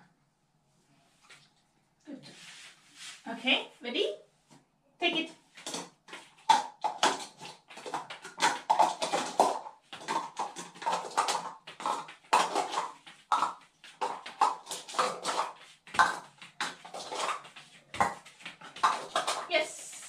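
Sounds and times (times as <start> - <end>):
plastic cups clattering: 5.5 - 20.0.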